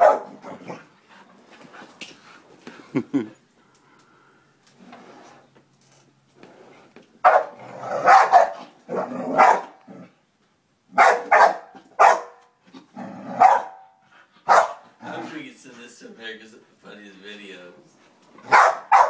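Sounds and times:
dog barking: 0:00.0 - 0:00.4, 0:07.2 - 0:09.8, 0:11.0 - 0:12.4, 0:13.4 - 0:13.9, 0:14.5 - 0:14.8, 0:18.4 - 0:19.0.

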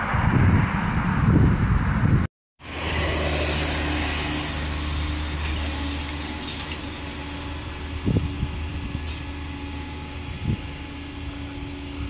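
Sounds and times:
low mechanical hum: 0:02.7 - 0:12.0.

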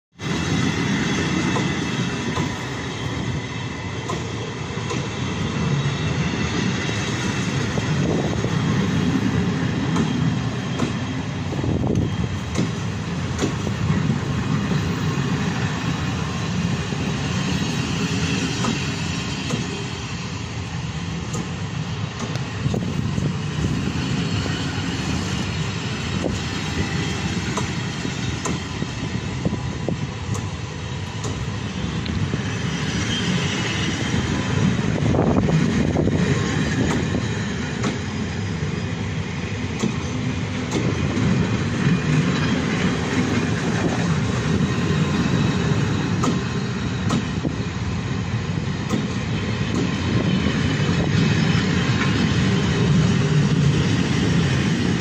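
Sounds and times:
train wheels rumbling on rails: 0:00.1 - 0:55.0
train wheel clicks: 0:01.4 - 0:02.7, 0:04.0 - 0:05.2, 0:09.8 - 0:13.9, 0:18.0 - 0:19.8, 0:21.2 - 0:23.3, 0:25.3 - 0:32.2, 0:34.3 - 0:38.2, 0:39.7 - 0:47.6, 0:48.8 - 0:53.6.

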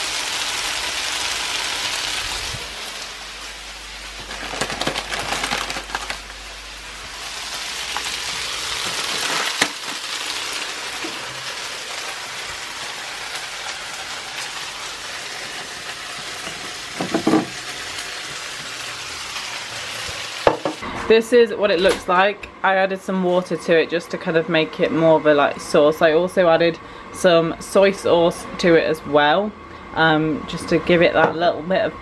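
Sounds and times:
food sizzling in a frying pan: 0:00.0 - 0:20.8.

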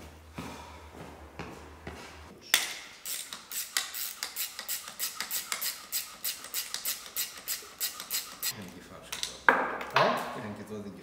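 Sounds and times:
ratchet mechanism clicking: 0:03.0 - 0:08.6.

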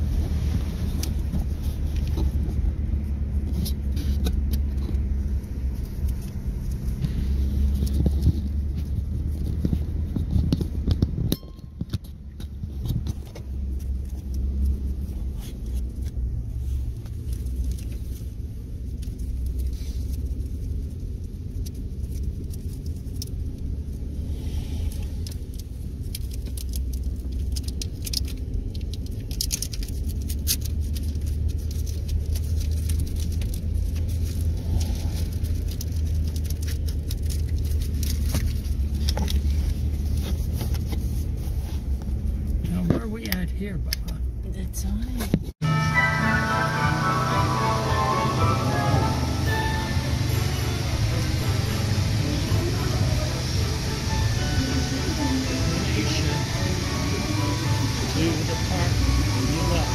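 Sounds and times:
engine and tyre rumble: 0:00.0 - 0:59.9
light ticks and rattles: 0:24.9 - 0:41.0.

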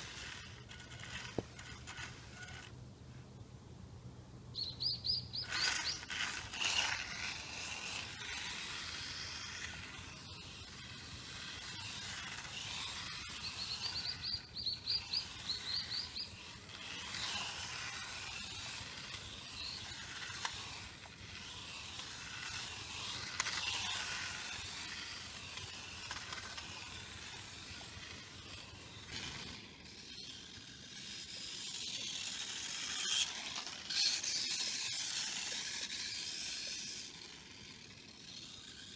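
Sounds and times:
rc car electric motor whining: 0:00.0 - 0:02.8, 0:04.6 - 0:38.9
bird chirping: 0:04.5 - 0:06.2, 0:13.2 - 0:16.5.

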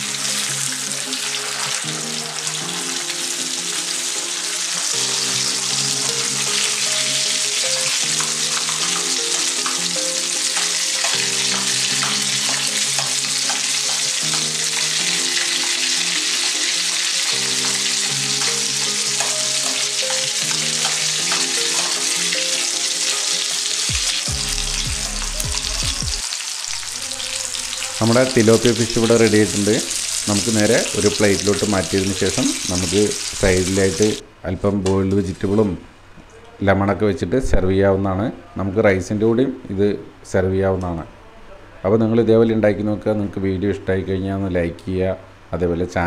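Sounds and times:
oil sizzling with pops: 0:00.0 - 0:34.2
soft background music: 0:00.0 - 0:34.3.

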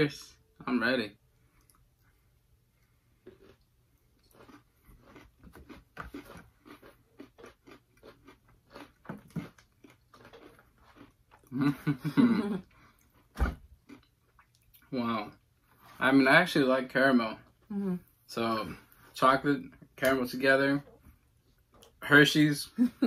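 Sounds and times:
chewing crunches: 0:03.2 - 0:11.8.

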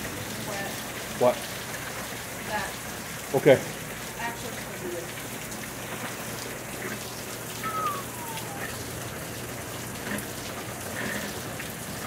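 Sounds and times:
heavy rain hissing: 0:05.7 - 0:12.0
faint falling tone: 0:07.6 - 0:08.8.

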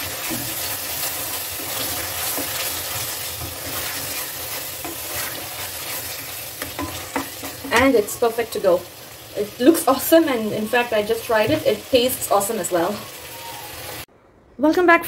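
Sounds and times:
wooden spatula scraping curry: 0:00.0 - 0:07.8
curry sizzling: 0:00.0 - 0:14.1.

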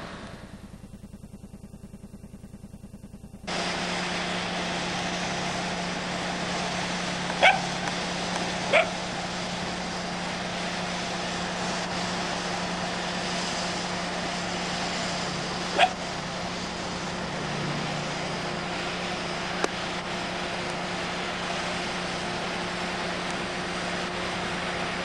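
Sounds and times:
dog barking: 0:07.4 - 0:07.7, 0:08.7 - 0:09.0, 0:15.7 - 0:16.0.

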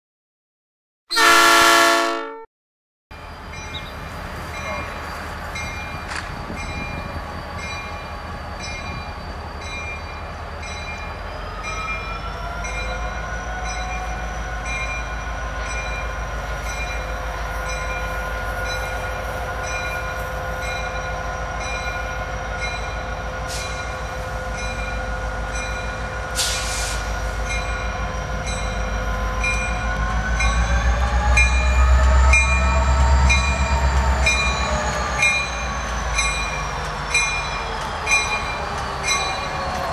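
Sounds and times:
train air horn chord: 0:01.1 - 0:02.5
crossing bell ringing: 0:03.2 - 0:26.3, 0:27.4 - 0:39.9.

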